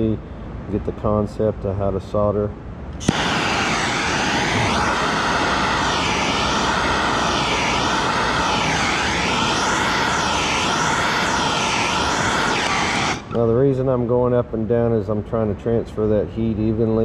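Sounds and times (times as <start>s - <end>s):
plumbing torch hissing: 3.0s - 13.5s.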